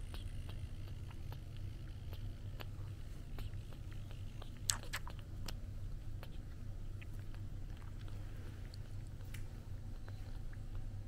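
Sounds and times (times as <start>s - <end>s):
wet sucking clicks: 0.0s - 5.6s
low steady hum: 0.0s - 11.0s.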